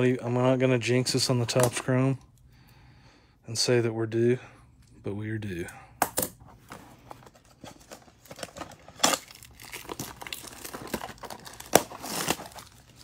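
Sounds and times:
plastic wrap crinkling and tearing: 0:07.4 - 0:13.0.

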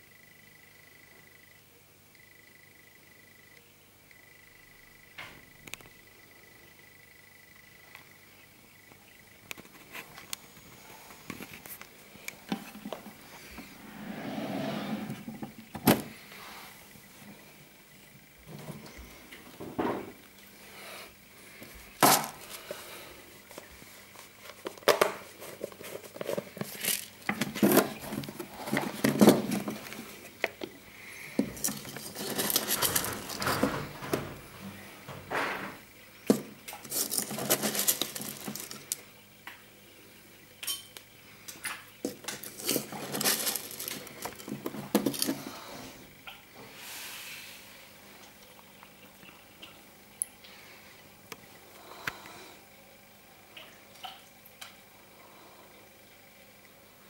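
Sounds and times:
hard objects clinking and clattering: 0:24.8 - 0:30.6, 0:31.4 - 0:34.4, 0:35.5 - 0:39.0, 0:42.0 - 0:45.5.

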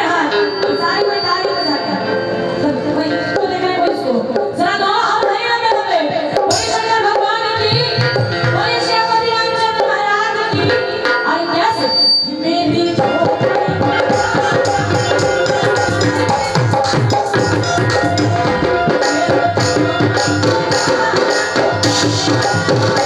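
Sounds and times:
gliding melody line: 0:12.6 - 0:23.0
hand drums quick rhythm: 0:13.2 - 0:23.0.

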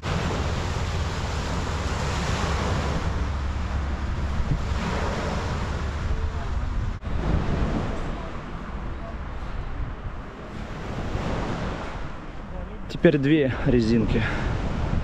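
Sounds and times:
small waves washing onto sand: 0:00.0 - 0:12.8
wind rumbling on microphone: 0:00.0 - 0:12.9, 0:13.5 - 0:15.0.

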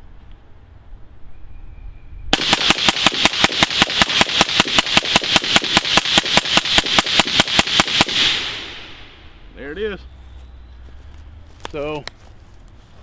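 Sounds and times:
suppressed rifle rapid shots: 0:02.4 - 0:09.2.

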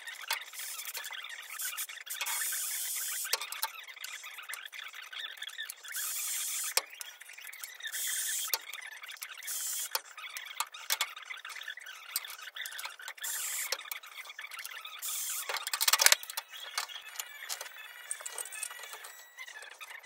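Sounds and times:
clicks and scrapes of clamps: 0:14.6 - 0:19.8.

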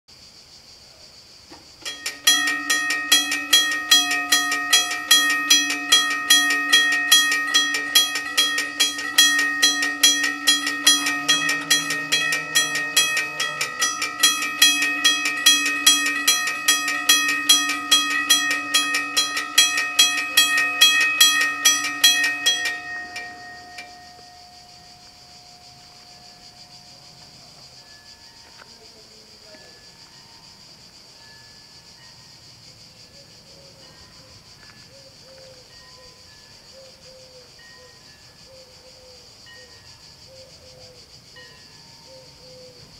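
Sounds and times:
level crossing bells ringing: 0:01.8 - 0:28.6.

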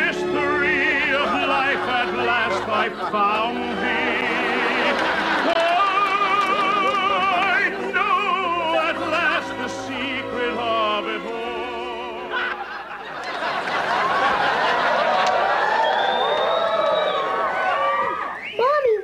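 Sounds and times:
operatic singing with vibrato: 0:00.0 - 0:12.8
crowd murmuring: 0:01.1 - 0:07.5.

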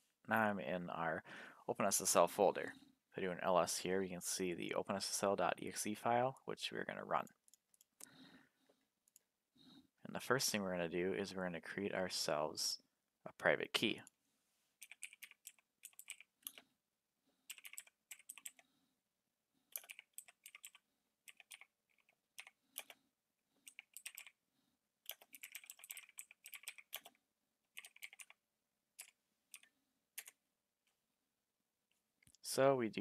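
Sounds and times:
typing on computer keyboard: 0:14.8 - 0:16.6, 0:17.5 - 0:18.6, 0:19.7 - 0:23.0, 0:23.6 - 0:24.4, 0:25.0 - 0:28.4, 0:29.0 - 0:30.4.

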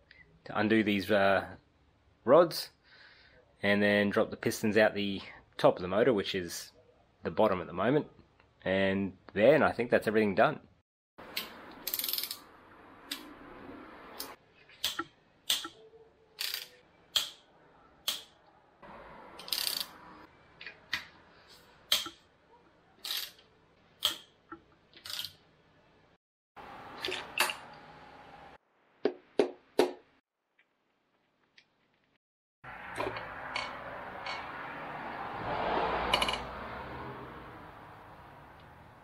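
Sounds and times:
socket wrench clicking: 0:11.4 - 0:12.4, 0:19.4 - 0:19.9.

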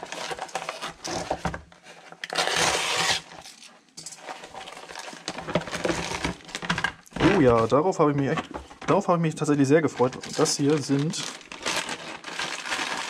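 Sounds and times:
paper crinkling: 0:00.0 - 0:13.0
paper envelope ripping: 0:02.2 - 0:03.5, 0:09.9 - 0:13.0
paper envelope rustling: 0:04.4 - 0:13.0.

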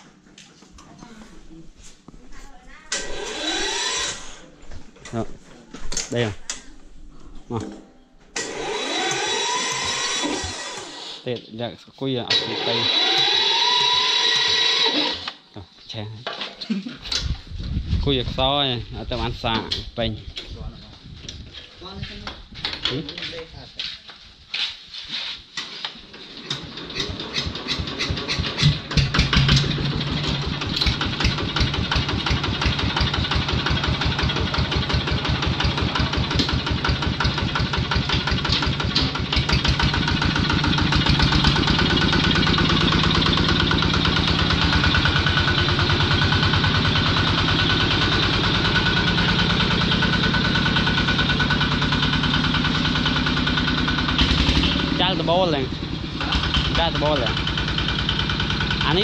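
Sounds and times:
diesel tractor engine starting and running: 0:02.9 - 0:05.2, 0:08.4 - 0:11.4, 0:12.1 - 0:15.5, 0:25.6 - 0:59.0.

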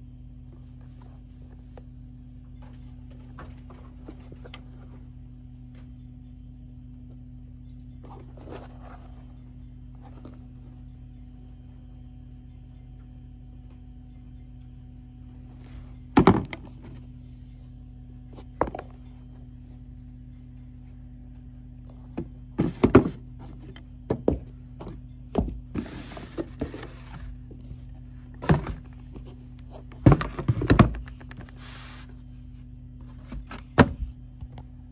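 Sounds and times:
steady low hum: 0:00.0 - 0:34.9
shoes knocking against cardboard box: 0:22.2 - 0:23.2, 0:24.1 - 0:27.1, 0:28.4 - 0:29.2, 0:29.8 - 0:31.4
rustling: 0:25.7 - 0:32.3.

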